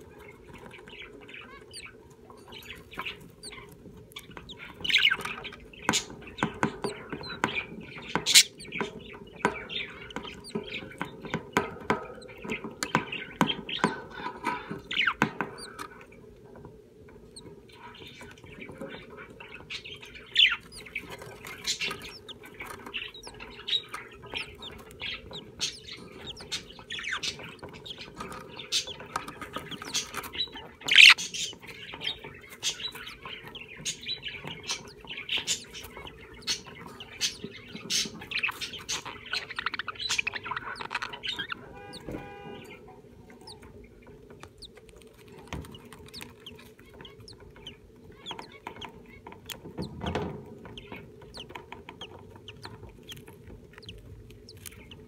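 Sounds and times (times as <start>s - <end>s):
clear pitched bird call: 0.0s - 11.3s, 19.0s - 43.8s
budgerigars chirping and chattering: 0.0s - 55.0s.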